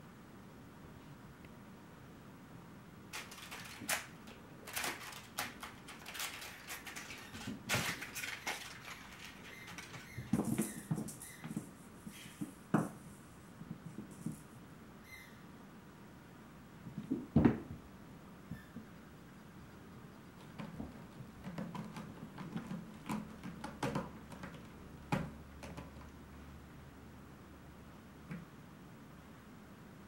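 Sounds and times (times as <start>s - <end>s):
crinkle toys crackling: 3.1s - 11.2s
paws scampering on hardwood floor: 4.7s - 13.0s.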